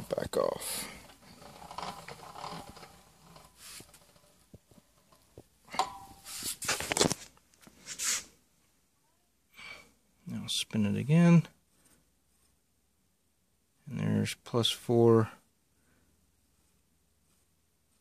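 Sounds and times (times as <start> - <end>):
rustling scrapes: 0.6 - 5.4, 6.2 - 8.4, 16.4 - 18.0
small clicks and scrapes: 0.8 - 8.1.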